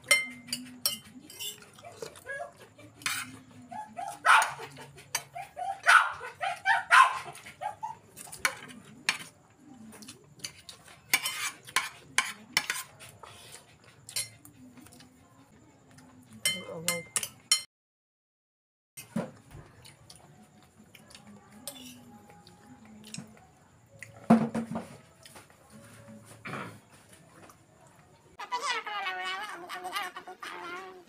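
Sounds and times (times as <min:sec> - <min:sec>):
spoons clinking on bowls: 0:00.0 - 0:01.8, 0:10.4 - 0:12.9, 0:14.1 - 0:14.4, 0:16.3 - 0:17.7, 0:21.6 - 0:22.2
dog barking: 0:03.7 - 0:08.0.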